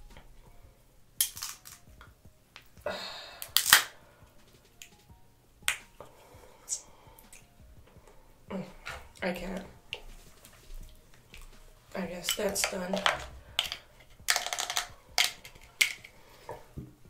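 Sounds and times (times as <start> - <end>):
crab shell cracking: 1.2 - 2.0, 3.4 - 4.0, 13.0 - 16.2.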